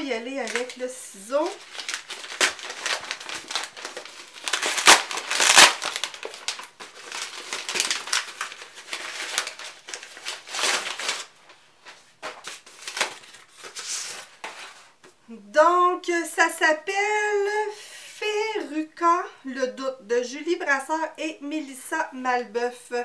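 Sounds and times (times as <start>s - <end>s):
cardboard packaging tearing: 1.4s - 11.4s, 12.4s - 14.4s.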